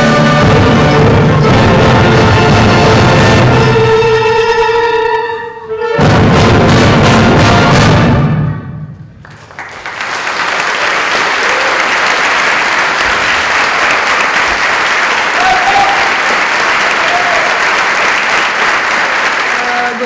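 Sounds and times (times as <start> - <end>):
audience applause: 9.2 - 20.0.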